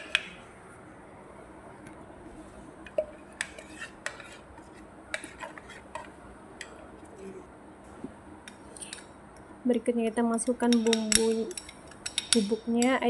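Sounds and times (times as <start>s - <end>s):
spoon scraping and clinking on bowl: 3.0s - 4.4s, 10.7s - 12.9s.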